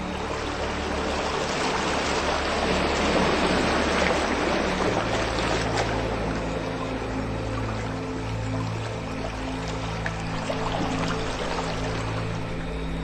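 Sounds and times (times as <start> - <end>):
ambient music drone: 0.0 - 13.0
water rushing: 0.0 - 13.0.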